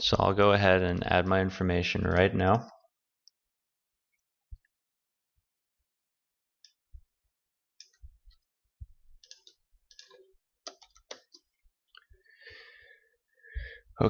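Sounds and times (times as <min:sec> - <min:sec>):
typing on computer keyboard: 0:09.2 - 0:11.5.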